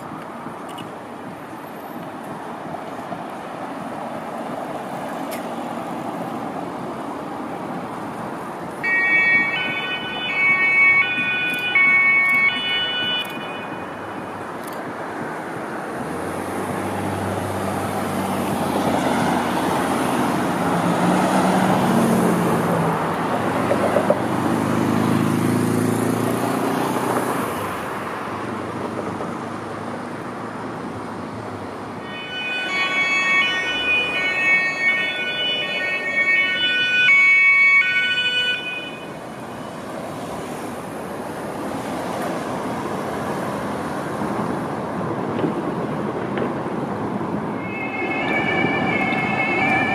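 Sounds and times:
road traffic: 0:00.0 - 0:49.9
two-tone police siren: 0:08.6 - 0:14.8, 0:31.9 - 0:39.8, 0:47.4 - 0:49.9.

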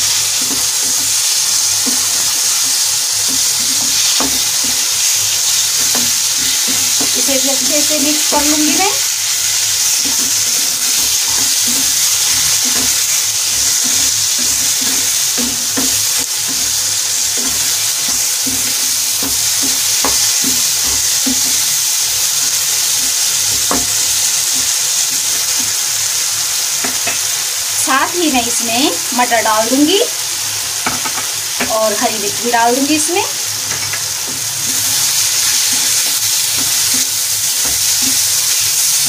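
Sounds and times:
spatula tapping pan: 0:00.0 - 0:25.8, 0:33.6 - 0:39.0
vegetables sizzling in hot oil: 0:00.0 - 0:39.0.

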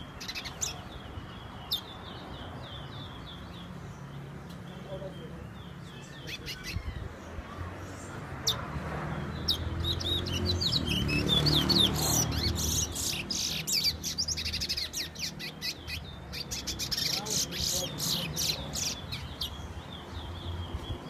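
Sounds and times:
bird singing whistled notes: 0:09.2 - 0:21.0.

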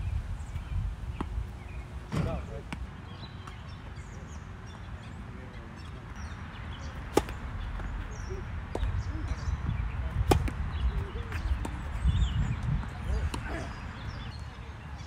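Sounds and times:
tennis racket hitting ball: 0:07.1 - 0:07.4, 0:10.2 - 0:10.6.

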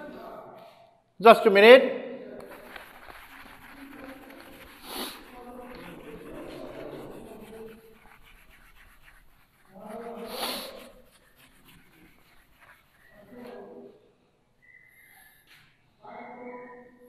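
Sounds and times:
duster rubbing on whiteboard: 0:02.4 - 0:13.8.

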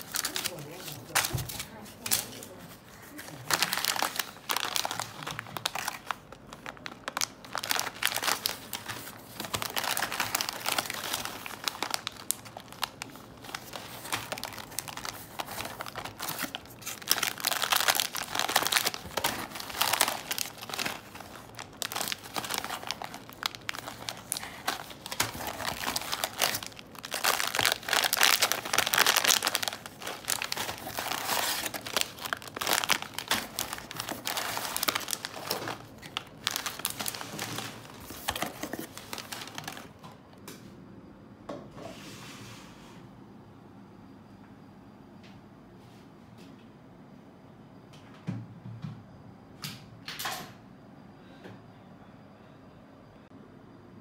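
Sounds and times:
plastic pouches crinkling: 0:00.0 - 0:40.1.

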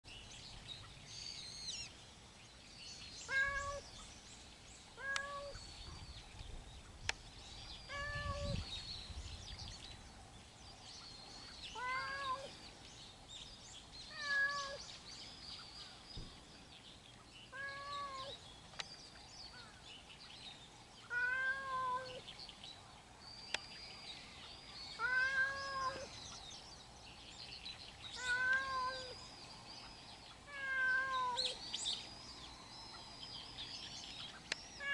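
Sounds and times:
cat meowing: 0:03.3 - 0:03.8, 0:07.9 - 0:08.6, 0:11.8 - 0:12.5, 0:14.1 - 0:14.8, 0:21.1 - 0:22.2, 0:25.0 - 0:26.1, 0:28.2 - 0:29.2, 0:30.5 - 0:31.6.

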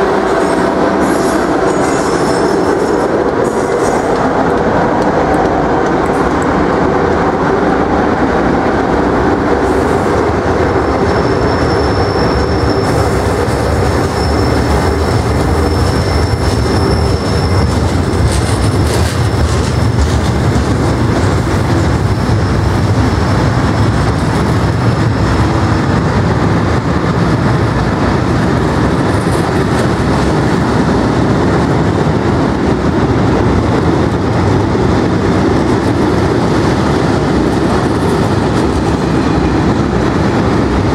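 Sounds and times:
freight train wheels rumbling: 0:00.0 - 0:40.9
high wheel squeal: 0:11.0 - 0:13.2, 0:13.9 - 0:14.9, 0:15.6 - 0:17.8.

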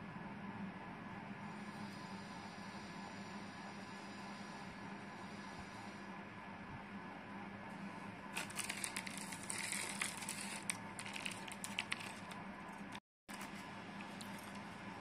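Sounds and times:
steady low hum: 0:00.0 - 0:15.0
plastic packet crinkling: 0:08.4 - 0:13.6.

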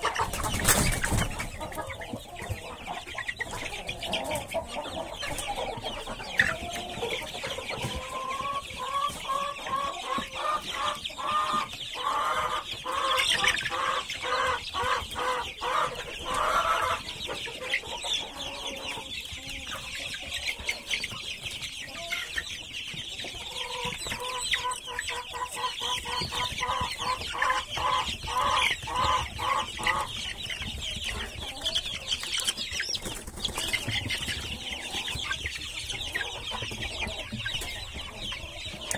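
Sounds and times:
chicks peeping: 0:00.0 - 0:38.9
lower repeated chick calls: 0:00.0 - 0:38.9.

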